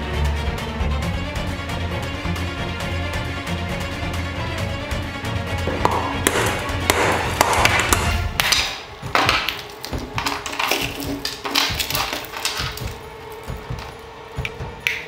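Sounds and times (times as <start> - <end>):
background music: 0.0 - 15.0
hammer cracking ice: 5.7 - 14.0
ice scraped off plastic: 8.4 - 14.0.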